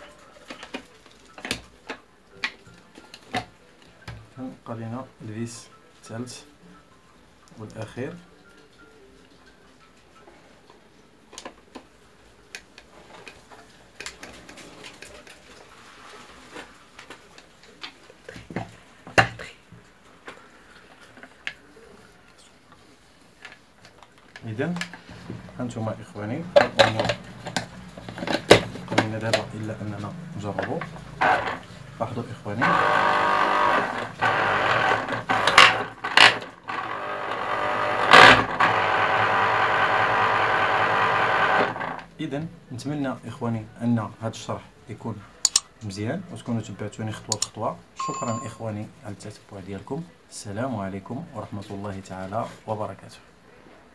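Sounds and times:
screwdriver clicks and creaks: 0:32.6 - 0:39.0, 0:45.4 - 0:45.7, 0:47.3 - 0:47.6
juicer knocking on workbench: 0:32.6 - 0:41.9.

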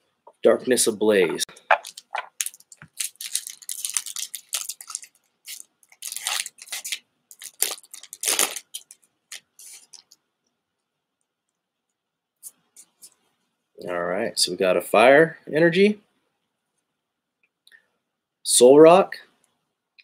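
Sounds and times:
foil wrapper crinkling and tearing: 0:01.8 - 0:10.2.

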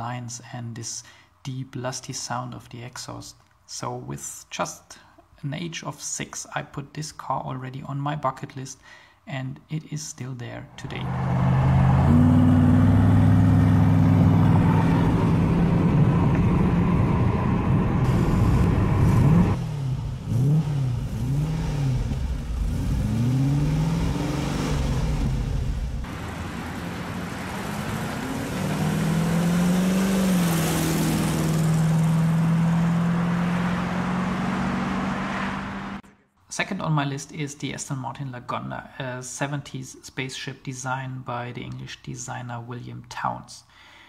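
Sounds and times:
car engine at motorway speed: 0:10.8 - 0:36.0
car engine revving in blips: 0:10.8 - 0:36.0.

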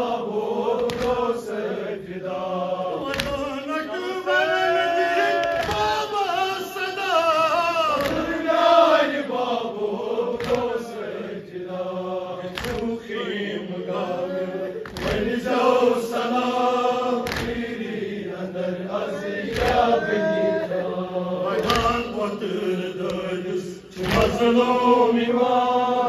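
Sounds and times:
group of men chanting: 0:00.0 - 0:26.0
man chanting through microphone: 0:02.8 - 0:08.5, 0:12.8 - 0:16.4, 0:19.1 - 0:26.0.

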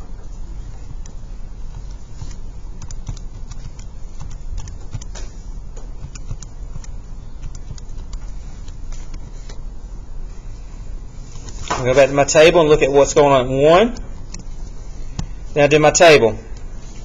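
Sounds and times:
steady low hum: 0:00.0 - 0:17.0
calculator keys clicking: 0:00.9 - 0:09.3.

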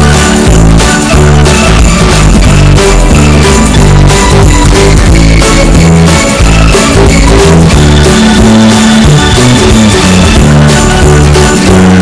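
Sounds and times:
upbeat music with guitar and drums: 0:00.0 - 0:12.0.

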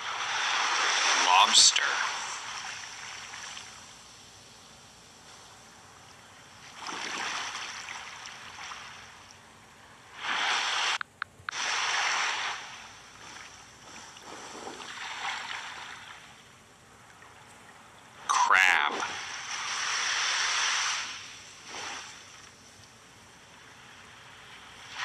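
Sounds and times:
ocean waves washing: 0:00.0 - 0:25.0.

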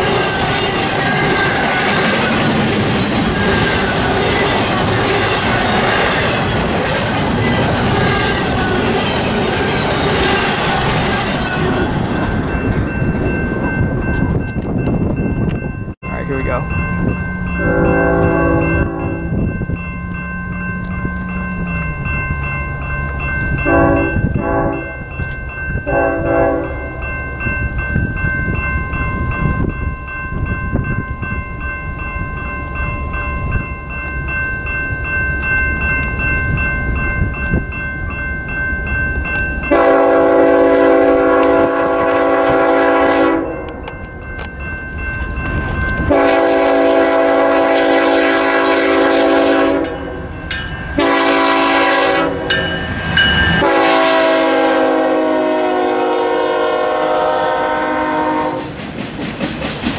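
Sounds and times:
train rumble: 0:00.0 - 0:59.9
locomotive horn blasts: 0:17.6 - 0:19.3, 0:23.6 - 0:25.0, 0:25.8 - 0:26.9, 0:39.7 - 0:43.7, 0:46.1 - 0:50.2, 0:51.0 - 0:52.6, 0:53.6 - 0:58.7.

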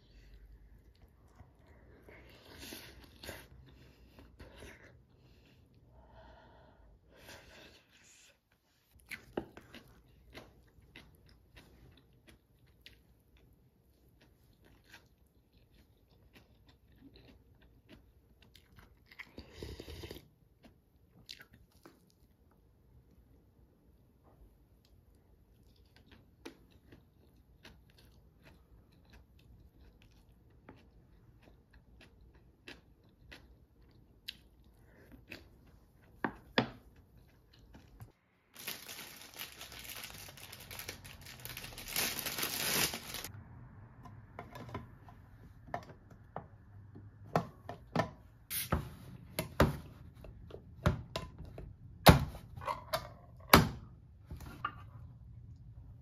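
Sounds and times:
chewing: 0:08.9 - 0:22.3, 0:25.5 - 0:38.2
plastic bag rustling and crinkling: 0:38.5 - 0:43.3.

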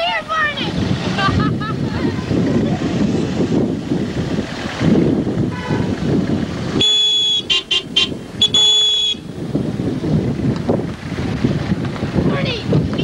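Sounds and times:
wind buffeting microphone: 0:00.0 - 0:13.0
car horn honking: 0:05.5 - 0:06.0, 0:06.8 - 0:09.4.

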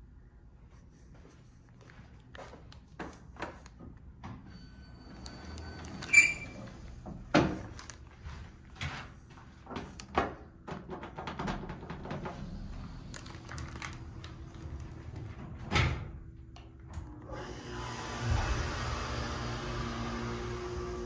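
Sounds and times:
elevator doors sliding shut: 0:04.5 - 0:07.6.

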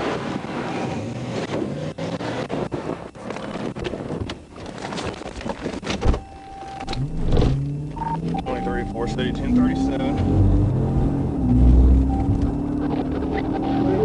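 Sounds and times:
road traffic: 0:06.0 - 0:14.0.

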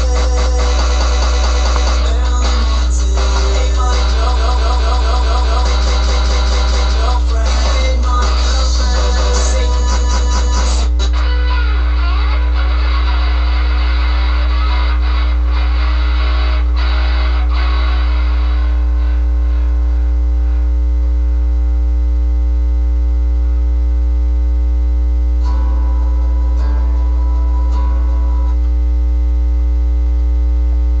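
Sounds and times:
electrical hum and buzz: 0:00.0 - 0:31.0
high tone: 0:25.3 - 0:28.8.

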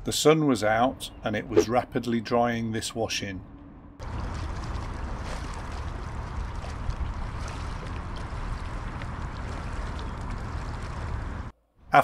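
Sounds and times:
faint wash of water: 0:04.0 - 0:11.5.

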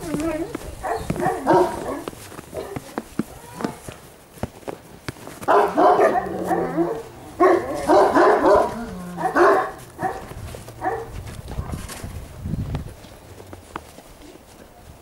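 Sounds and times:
puppies yapping: 0:00.4 - 0:02.8, 0:05.5 - 0:11.8.

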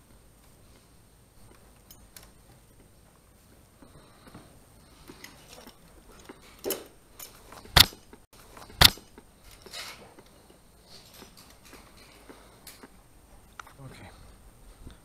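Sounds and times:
metallic clacks of climbing gear: 0:00.0 - 0:13.8.

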